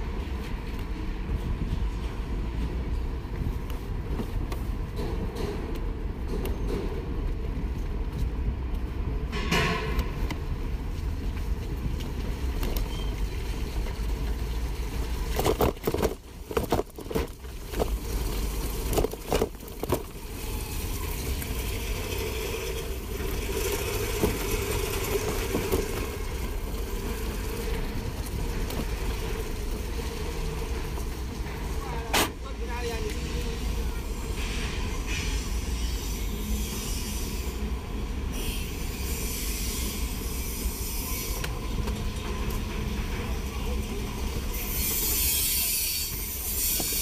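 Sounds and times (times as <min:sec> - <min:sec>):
bike tyres rumbling on dirt: 0:10.8 - 0:31.8
bike knocks and jolts: 0:15.2 - 0:20.6.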